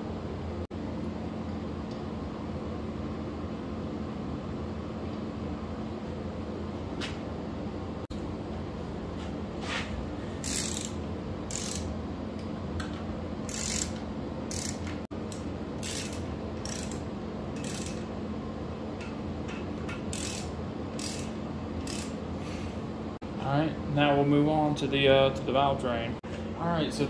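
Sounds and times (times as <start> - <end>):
socket ratchet clicking: 10.4 - 11.9, 13.5 - 17.0, 17.6 - 18.1, 19.9 - 22.2.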